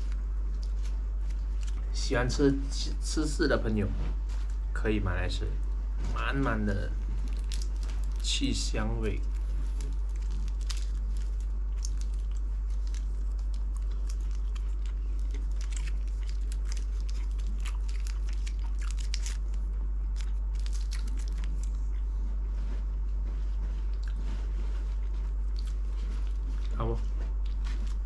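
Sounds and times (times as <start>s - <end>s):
steady low hum: 0.0s - 28.0s
person chewing snack: 7.0s - 8.3s, 9.1s - 22.4s, 23.8s - 28.0s.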